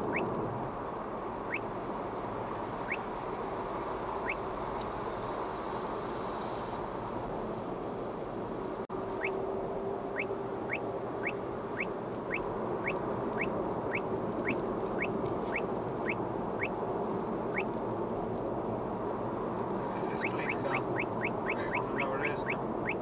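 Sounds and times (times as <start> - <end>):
radar detector rising chirps: 0.0 - 0.3, 1.4 - 1.7, 2.8 - 3.1, 4.2 - 4.5, 9.1 - 9.4, 10.1 - 16.8, 17.5 - 17.8, 20.0 - 23.0
road noise inside car: 0.0 - 23.0.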